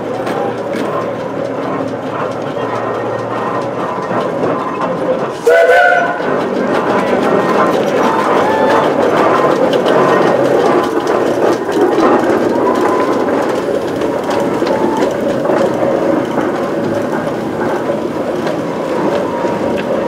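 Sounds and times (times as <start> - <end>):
clanking of the motion: 0.0 - 20.0
steam road locomotive driving: 0.0 - 20.0.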